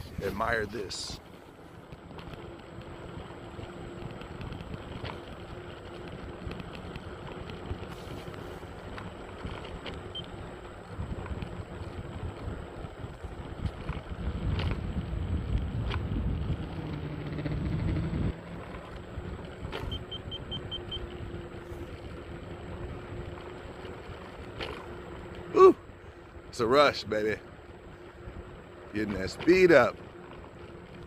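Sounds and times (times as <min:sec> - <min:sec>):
scooter tyres and motor rumbling: 0:00.0 - 0:31.0
wind on microphone: 0:10.9 - 0:18.5
faint high beeps: 0:19.8 - 0:21.1.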